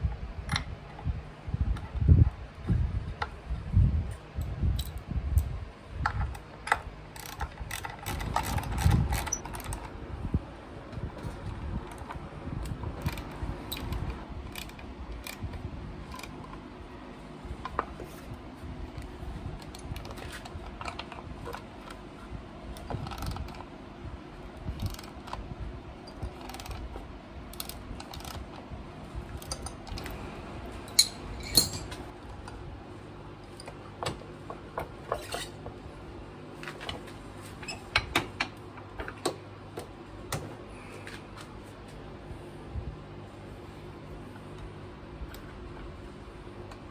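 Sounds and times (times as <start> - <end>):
socket ratchet clicking: 12.0 - 15.5, 24.8 - 25.3, 26.1 - 26.8, 27.5 - 28.4.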